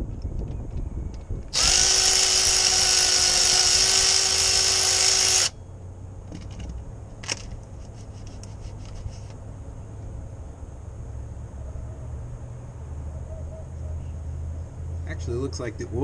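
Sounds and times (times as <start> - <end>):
handheld power tool running: 1.5 - 5.6.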